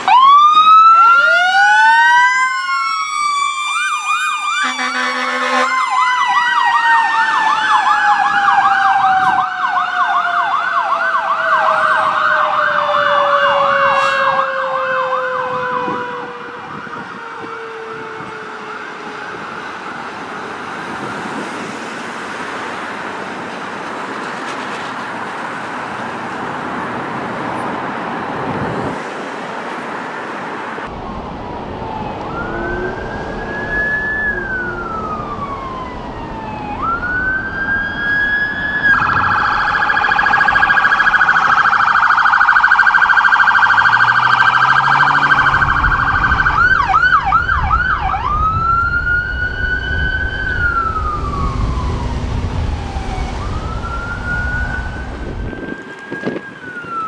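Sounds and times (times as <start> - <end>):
police siren wailing and yelping: 0.0 - 22.3, 30.9 - 57.0
vehicle engine rumbling past: 30.9 - 37.4, 43.9 - 55.8.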